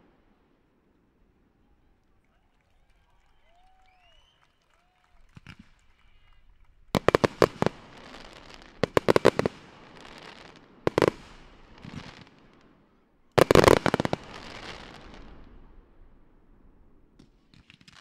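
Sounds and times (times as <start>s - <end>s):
fireworks bursting: 5.1s - 18.0s.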